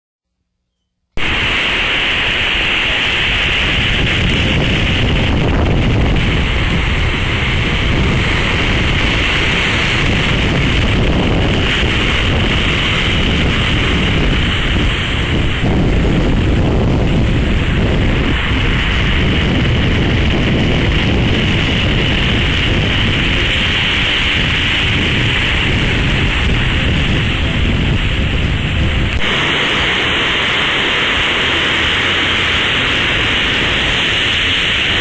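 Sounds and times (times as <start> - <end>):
surf breaking over rocks: 1.2 - 35.0
wind rumble on microphone: 1.2 - 35.0.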